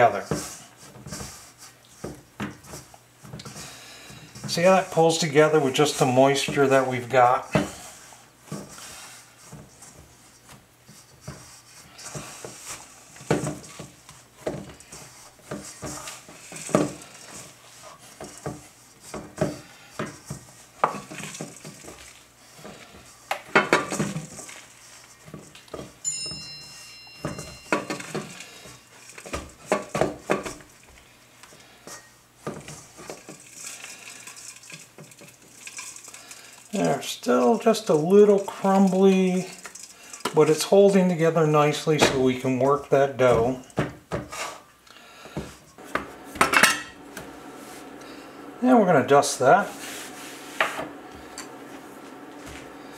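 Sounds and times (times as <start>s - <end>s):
dough kneaded in metal bowl: 0.0s - 52.9s
metal bowl knocking and ringing: 26.0s - 28.4s.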